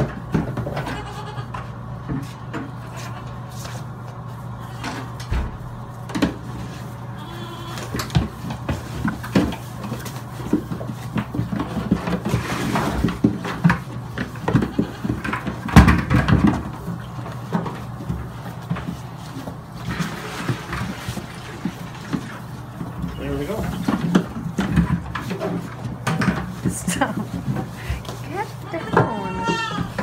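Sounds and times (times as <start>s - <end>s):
goat kids bleating: 0.7s - 1.7s, 2.7s - 3.5s, 7.1s - 8.0s, 14.3s - 15.3s, 28.6s - 30.0s.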